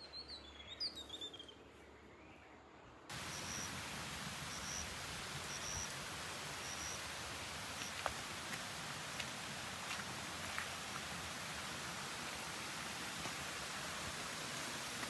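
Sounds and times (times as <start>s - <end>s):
stream rushing: 3.1s - 15.0s.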